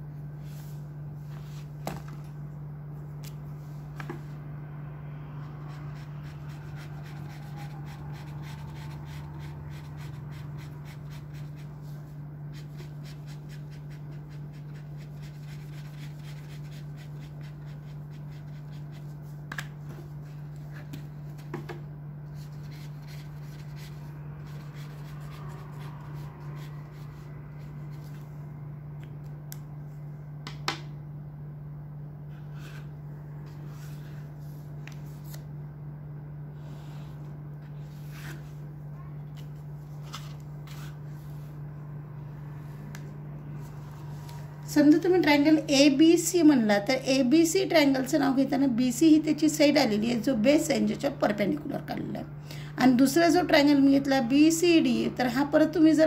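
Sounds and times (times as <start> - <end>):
steady low hum: 0.0 - 56.0
pen scratching on paper: 12.5 - 19.1, 22.4 - 27.0.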